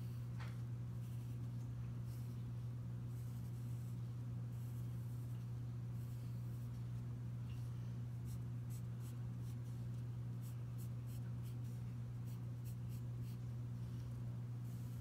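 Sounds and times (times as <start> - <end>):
steady low hum: 0.0 - 15.0
pencil scratching on paper: 3.1 - 4.0, 8.2 - 13.4.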